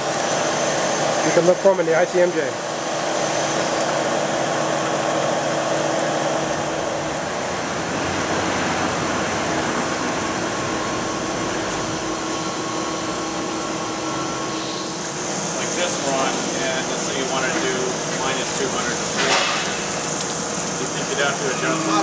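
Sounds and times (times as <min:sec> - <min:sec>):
machine hum: 0:00.0 - 0:22.0
water spraying from a hose: 0:14.8 - 0:22.0.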